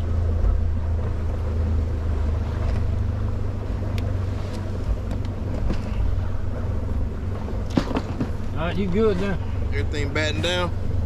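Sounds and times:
boat motor droning: 0:00.0 - 0:11.0.

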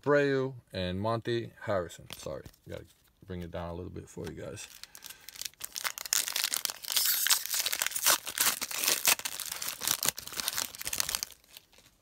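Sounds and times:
foil wrapper tearing and crinkling: 0:04.7 - 0:12.0.

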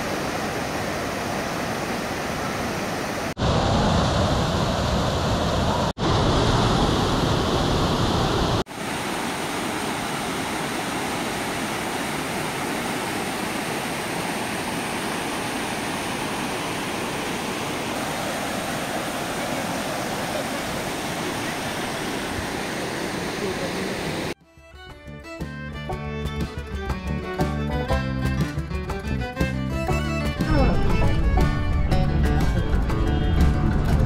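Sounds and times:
waterfall rushing over rocks: 0:00.0 - 0:24.4.

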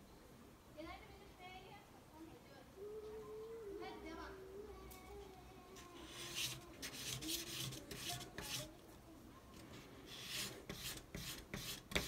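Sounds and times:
knife scraping on sandpaper: 0:06.0 - 0:08.7, 0:10.1 - 0:12.0.

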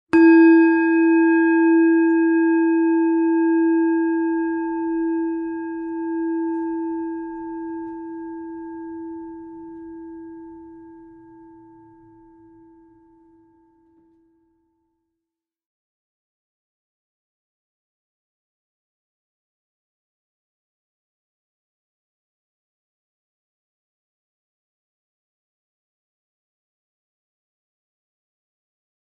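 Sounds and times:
singing bowl ringing: 0:00.1 - 0:14.6.

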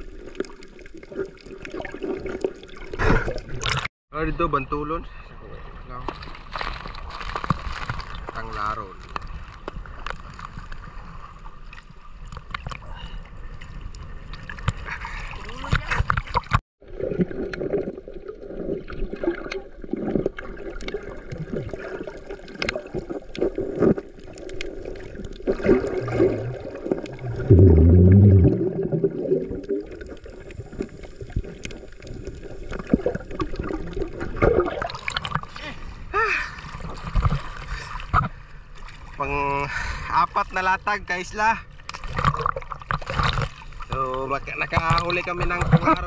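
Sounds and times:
water gurgling and sloshing: 0:00.0 - 0:03.9, 0:04.5 - 0:46.0
loud low water rush: 0:25.6 - 0:29.8.

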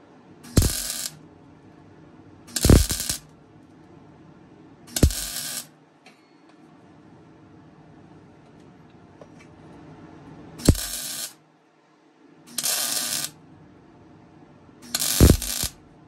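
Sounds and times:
sharp welding pop: 0:00.5 - 0:01.2, 0:02.5 - 0:03.2, 0:04.9 - 0:05.6, 0:10.6 - 0:11.3, 0:14.9 - 0:15.8
welding arc sizzle: 0:00.5 - 0:01.2, 0:02.5 - 0:03.3, 0:04.9 - 0:05.7, 0:10.6 - 0:11.4, 0:12.5 - 0:13.4, 0:14.8 - 0:15.8.

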